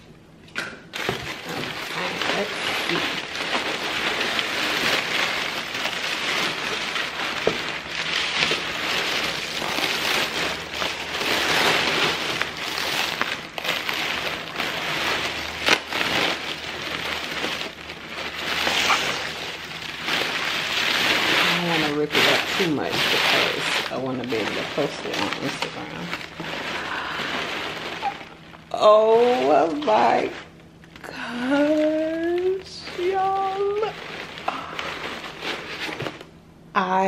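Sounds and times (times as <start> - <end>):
paper rustling and crackling: 0.9 - 36.3.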